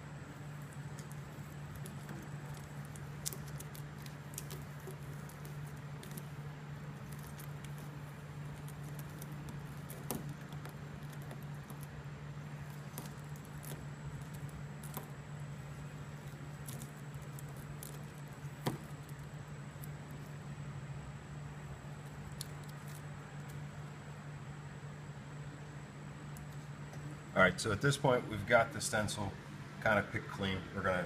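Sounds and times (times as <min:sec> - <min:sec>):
scratching and peeling stencil: 0:00.0 - 0:20.4
steady low hum: 0:00.0 - 0:31.0.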